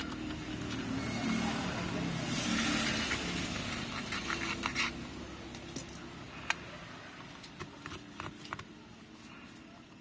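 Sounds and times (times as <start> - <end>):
metal pick clicks and scrapes: 3.1 - 6.7.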